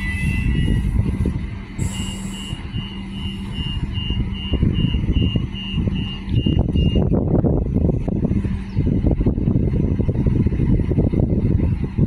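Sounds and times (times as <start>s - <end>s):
high electronic warning beeps: 0.0s - 1.0s, 1.8s - 7.1s
diesel railcar engine idling: 0.0s - 12.0s.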